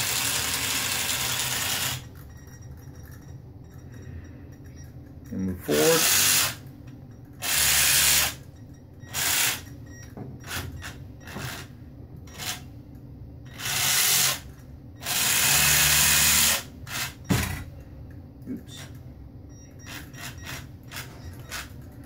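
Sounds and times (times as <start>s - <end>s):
small electric motor bursts: 0.0s - 2.1s, 5.7s - 6.6s, 7.4s - 8.4s, 9.1s - 9.7s, 13.5s - 14.4s, 15.0s - 17.2s.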